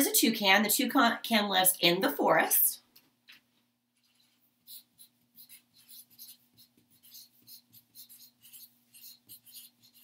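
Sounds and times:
marker pen squeaking on paper: 4.0 - 10.0.

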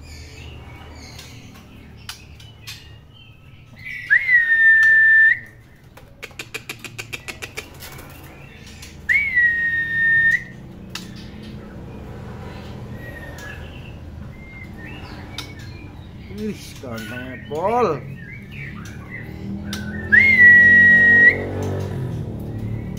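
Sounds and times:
bird whistled notes: 3.8 - 5.6, 9.0 - 10.6, 18.2 - 21.6
quick run of clicks: 5.8 - 9.0.

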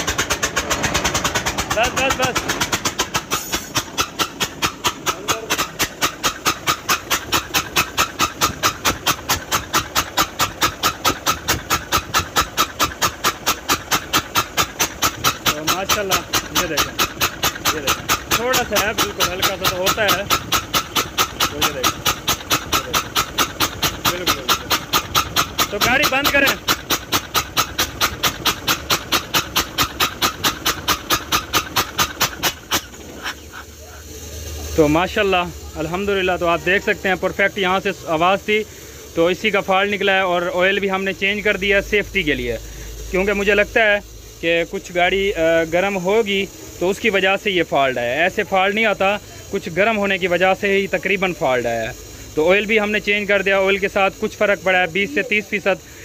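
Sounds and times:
compressed air hissing in puffs: 0.0 - 56.0
diesel engine idling: 0.0 - 56.0.

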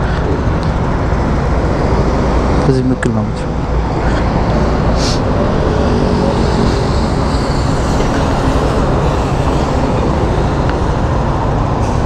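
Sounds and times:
buses driving past: 0.0 - 12.0
low traffic rumble: 0.0 - 12.0.

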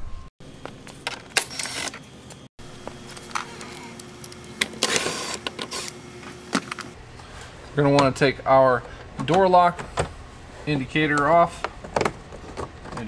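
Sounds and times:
drill motor hum: 2.6 - 7.0.

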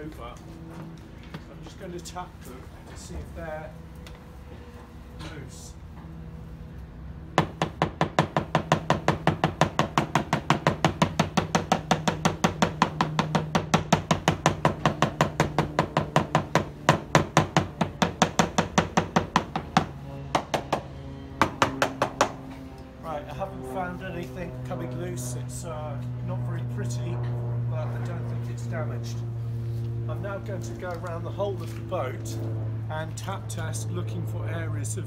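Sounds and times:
hammer tapping fibreglass hull: 7.4 - 22.5.

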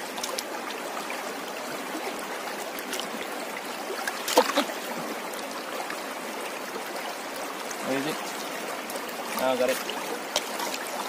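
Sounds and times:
river water running over rocks: 0.0 - 11.0
water splash: 3.9 - 5.1, 9.3 - 11.0.

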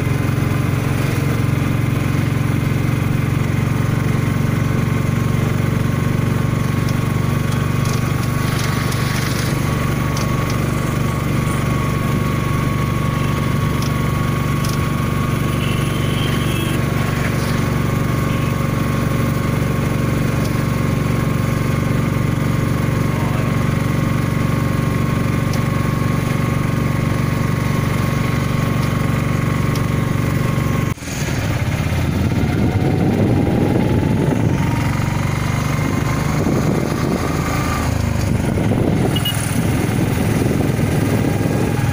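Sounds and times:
engine running: 0.0 - 41.9.

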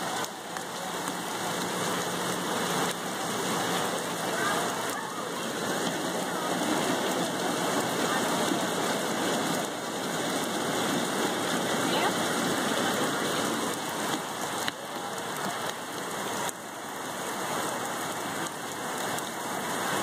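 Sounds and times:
steady rain hiss: 0.0 - 20.0.

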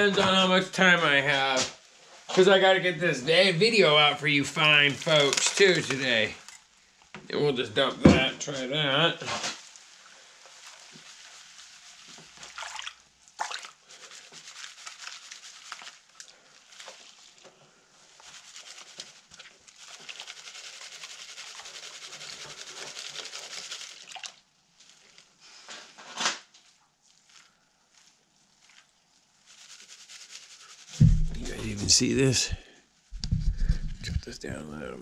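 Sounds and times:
water sloshing in a pan: 9.2 - 20.3, 24.0 - 25.3.

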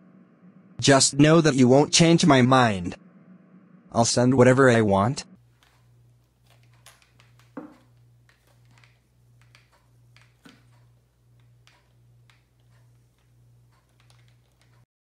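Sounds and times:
low hum: 0.0 - 6.7
knock: 7.6 - 7.8
game controller button clicks: 8.3 - 12.8, 13.9 - 14.7.

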